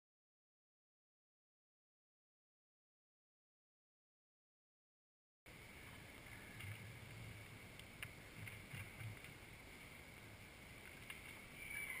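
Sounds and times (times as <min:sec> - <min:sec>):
steady high-pitched whine: 0:05.5 - 0:12.0.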